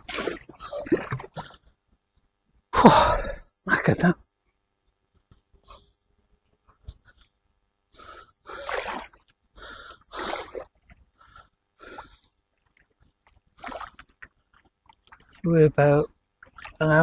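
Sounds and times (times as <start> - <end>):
man breathing hard: 7.9 - 8.8, 9.6 - 10.5.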